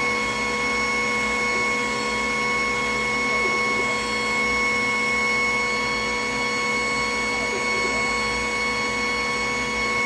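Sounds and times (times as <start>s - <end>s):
high steady fan tones: 0.0s - 10.0s
laser cutter whirring hum: 0.0s - 10.0s.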